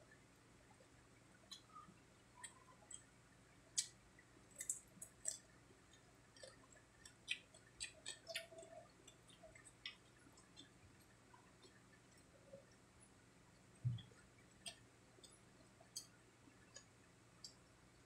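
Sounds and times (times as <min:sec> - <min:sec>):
people chewing crispy food: 0:02.4 - 0:12.4.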